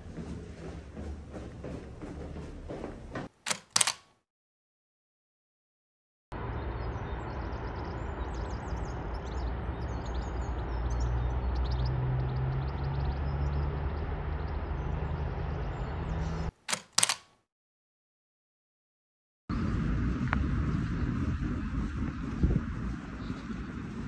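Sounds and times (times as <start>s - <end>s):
distant traffic rumble: 0.0s - 4.0s, 6.3s - 17.2s, 19.5s - 24.0s
camera shutter clicks: 3.5s - 4.1s, 16.7s - 17.4s
engine hum: 6.3s - 17.2s, 19.5s - 24.0s
faint birds chirping: 6.4s - 16.5s, 19.5s - 24.0s.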